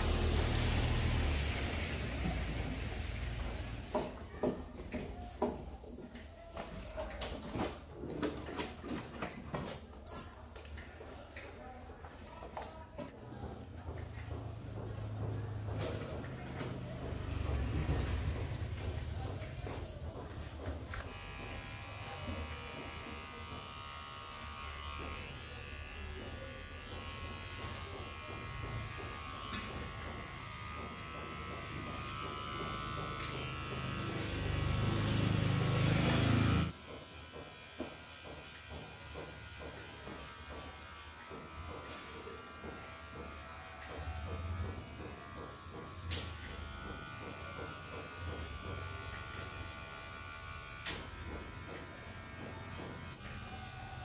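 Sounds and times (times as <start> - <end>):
steady buzz: 20.9 - 54.0.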